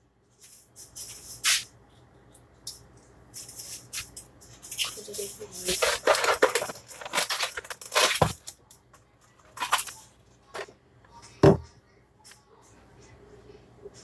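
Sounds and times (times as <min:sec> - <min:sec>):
packaging crinkling and rustling: 0:04.7 - 0:08.6, 0:09.3 - 0:10.7.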